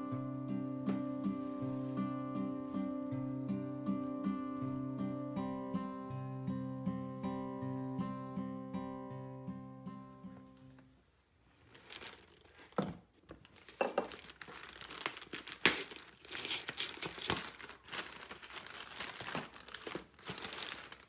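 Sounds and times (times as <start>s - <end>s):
packaging crinkling and rustling: 11.5s - 21.0s.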